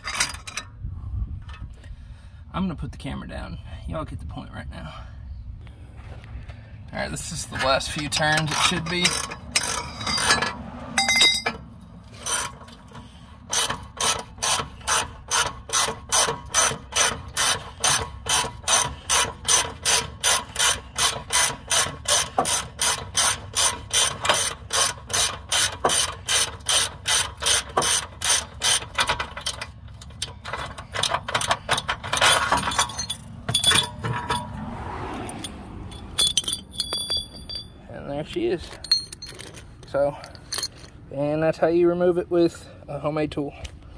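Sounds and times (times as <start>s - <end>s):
ratcheting wrench clicking: 8.0s - 11.4s, 12.2s - 34.5s.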